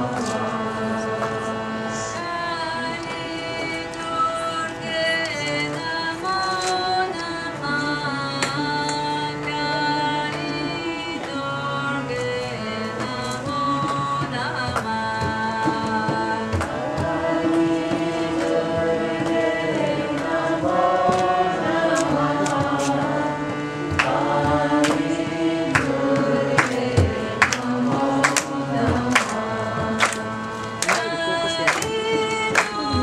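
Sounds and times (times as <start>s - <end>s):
sustained held notes: 0.0s - 33.0s
voices chanting: 15.8s - 33.0s.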